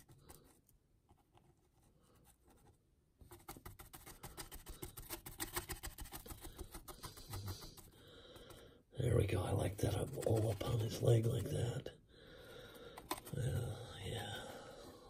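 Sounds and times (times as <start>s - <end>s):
paintbrush scratchy strokes: 0.0s - 8.0s, 9.7s - 11.6s.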